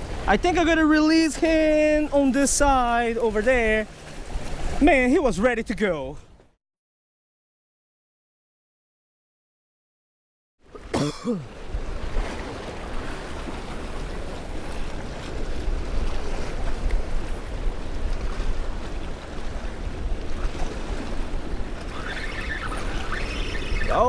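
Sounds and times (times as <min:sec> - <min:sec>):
wind rumbling on microphone: 0:11.6 - 0:24.0.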